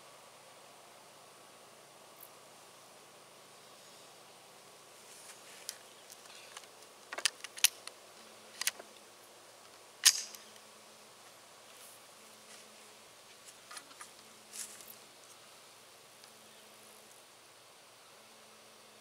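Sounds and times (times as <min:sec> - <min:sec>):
rifle metallic clicks: 0:07.2 - 0:08.0, 0:10.0 - 0:10.5
rifle action clack: 0:10.0 - 0:10.5.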